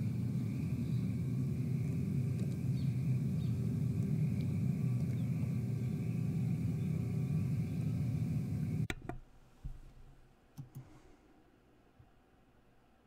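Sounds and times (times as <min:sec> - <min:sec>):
steady low rumble: 0:00.0 - 0:08.9
computer mouse clicks: 0:10.6 - 0:11.0.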